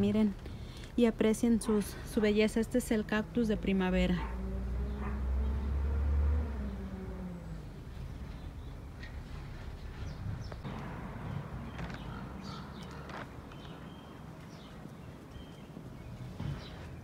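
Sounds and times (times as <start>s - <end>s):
small birds chirping: 6.5s - 17.0s.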